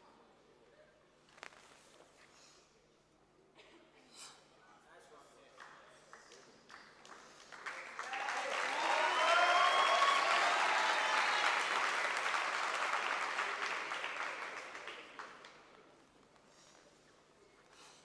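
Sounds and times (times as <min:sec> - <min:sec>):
crowd applauding and cheering: 0:06.7 - 0:15.6.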